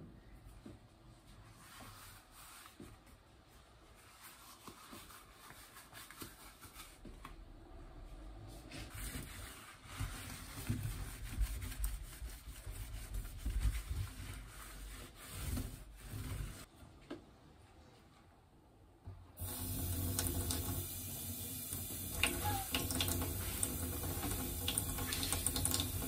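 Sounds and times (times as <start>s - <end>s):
cloth scrubbing steel sink: 19.4s - 26.0s.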